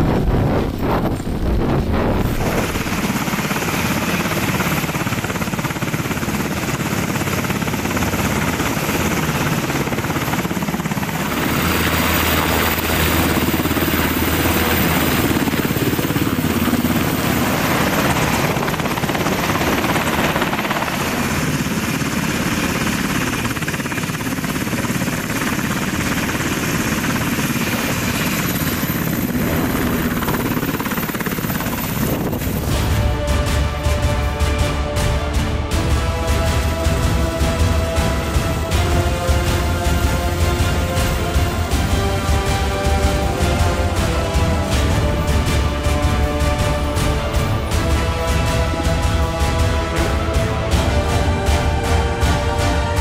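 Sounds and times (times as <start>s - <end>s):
helicopter engines and rotor: 0.0s - 53.0s.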